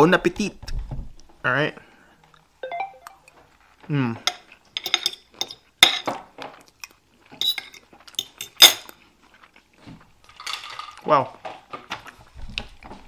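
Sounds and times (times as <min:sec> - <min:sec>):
cutlery clinking on a plate: 0:04.2 - 0:06.5, 0:07.4 - 0:08.9.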